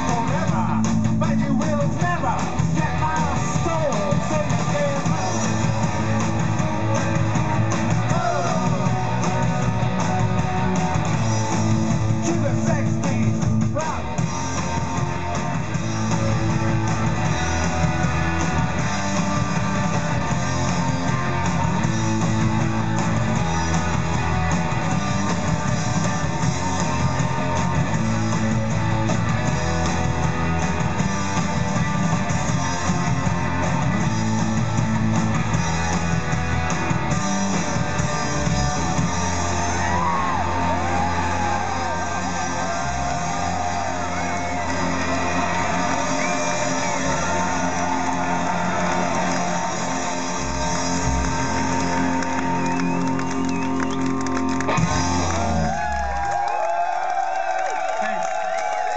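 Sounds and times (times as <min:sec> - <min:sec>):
bass line: 0:00.0 - 0:58.9
electric guitars: 0:00.0 - 0:58.9
person singing: 0:08.0 - 0:09.6.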